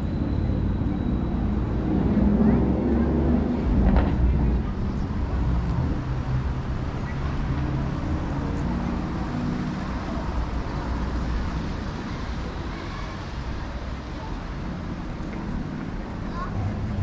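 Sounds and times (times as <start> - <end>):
low engine drone: 0.0 - 10.4
passing cars: 0.0 - 17.0.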